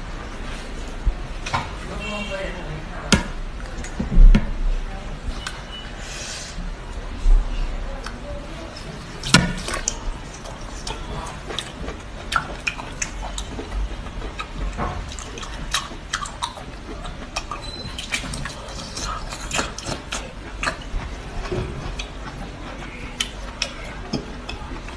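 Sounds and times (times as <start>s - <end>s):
wet mouth eating sounds: 8.0s - 24.9s.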